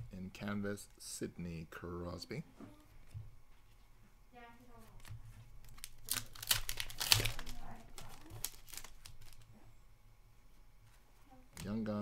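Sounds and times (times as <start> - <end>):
card pack wrapper tearing and crinkling: 5.6 - 9.5.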